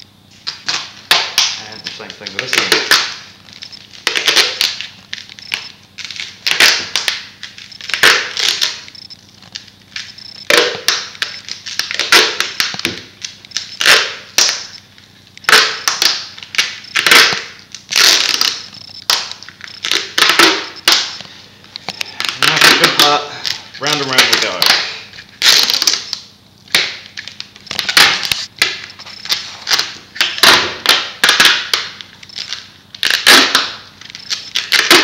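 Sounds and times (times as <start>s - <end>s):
duct tape ripping off roll: 6.0s - 8.9s, 10.5s - 14.7s, 15.4s - 21.2s, 24.6s - 35.0s.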